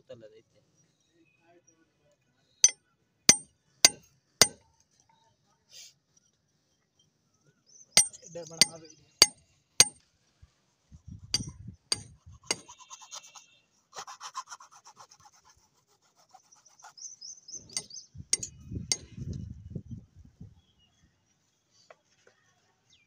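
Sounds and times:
hammer striking steel chisel: 0:02.6 - 0:04.6, 0:08.0 - 0:10.0, 0:11.4 - 0:12.7, 0:17.8 - 0:19.1
metal tool rasping on brick: 0:02.6 - 0:04.6, 0:08.0 - 0:10.0, 0:11.4 - 0:12.8, 0:17.8 - 0:19.1
sharp taps and dull knocks: 0:11.4 - 0:12.6, 0:17.8 - 0:19.1.

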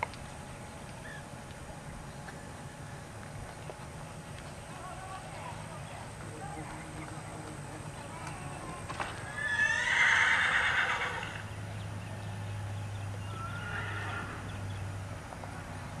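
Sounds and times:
horse whinnying: 0:09.2 - 0:11.5, 0:13.3 - 0:14.5.

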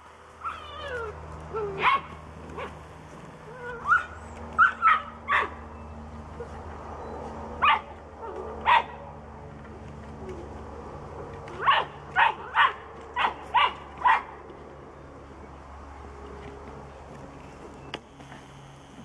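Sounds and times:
puppies yipping and barking: 0:00.4 - 0:02.8, 0:03.4 - 0:09.2, 0:11.4 - 0:14.5.

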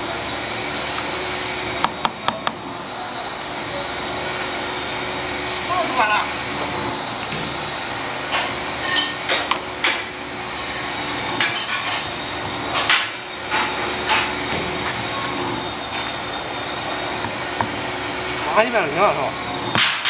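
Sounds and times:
background machine hum: 0:00.0 - 0:20.0.

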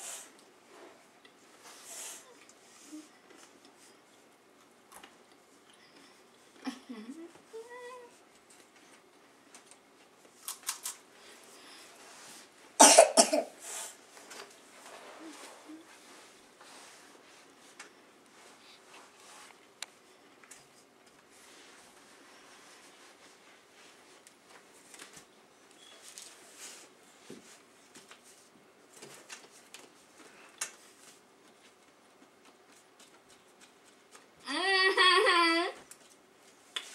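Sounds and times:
person coughing: 0:12.8 - 0:13.6.

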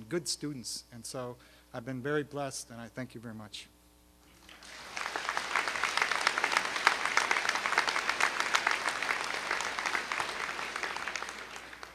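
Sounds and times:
crowd applauding: 0:04.4 - 0:11.9.

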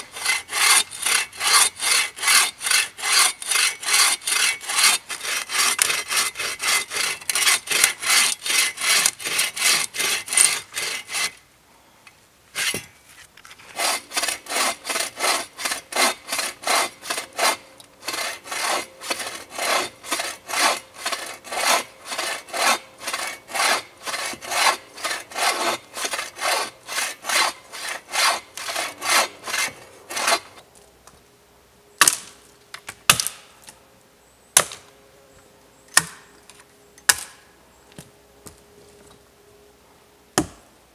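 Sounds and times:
bow saw cutting wood: 0:00.0 - 0:11.4, 0:12.6 - 0:12.9, 0:13.6 - 0:30.6.

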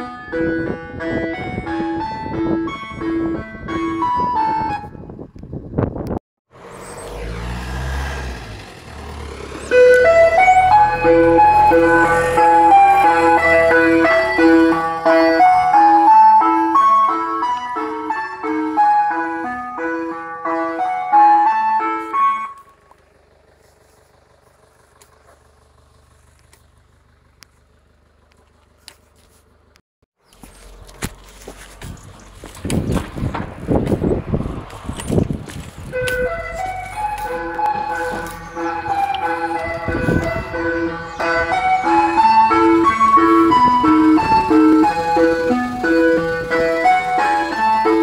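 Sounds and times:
ice cream van chime: 0:00.0 - 0:05.3, 0:09.5 - 0:23.0, 0:35.8 - 0:48.0
vehicle engine rumbling: 0:00.0 - 0:48.0.

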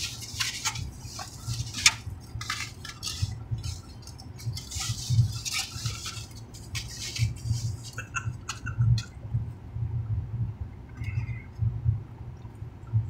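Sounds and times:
food packaging rustling and crinkling: 0:00.0 - 0:08.6.

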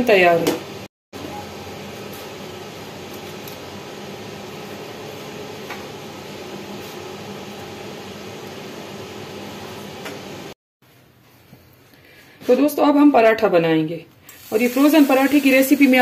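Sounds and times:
steady machine hum: 0:00.8 - 0:10.6.

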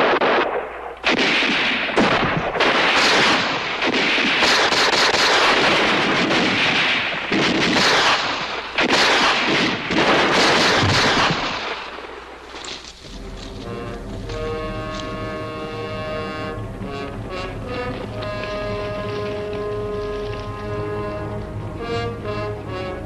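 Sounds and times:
dense gunfire: 0:00.0 - 0:12.6
loud blasts: 0:00.0 - 0:12.6, 0:13.2 - 0:23.0.

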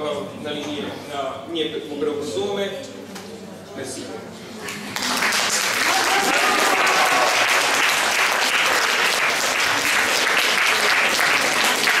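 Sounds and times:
audience clapping: 0:04.6 - 0:12.0.

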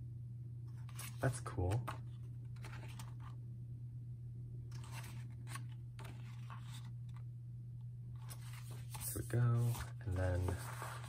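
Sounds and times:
steady low hum: 0:00.0 - 0:11.0
pages being flipped: 0:00.7 - 0:03.4, 0:04.7 - 0:07.2, 0:08.1 - 0:11.0.

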